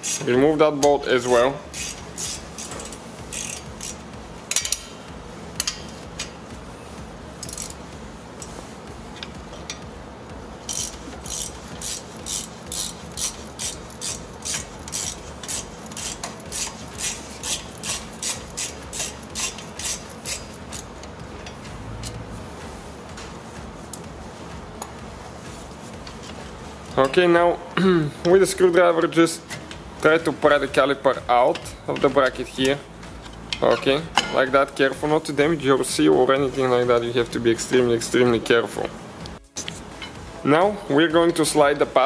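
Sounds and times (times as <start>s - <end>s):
hand ratchet rasping: 0.0s - 0.3s, 1.7s - 4.8s, 7.4s - 7.8s, 10.7s - 21.1s.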